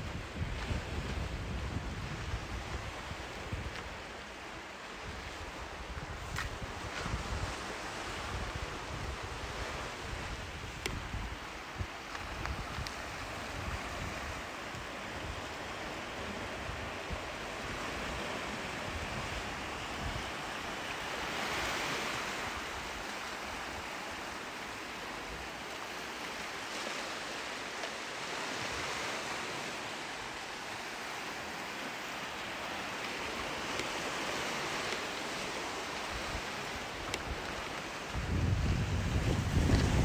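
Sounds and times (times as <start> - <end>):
wind buffeting microphone: 0.0 - 4.0, 5.1 - 15.4, 36.1 - 40.0
ocean waves breaking on beach: 0.0 - 40.0.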